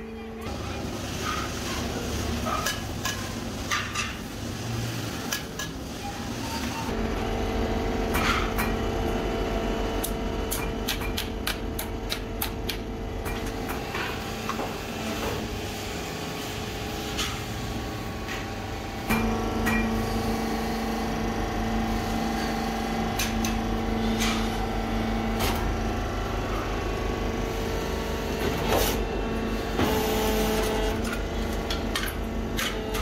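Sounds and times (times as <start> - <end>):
steady machine hum: 6.9 - 33.0.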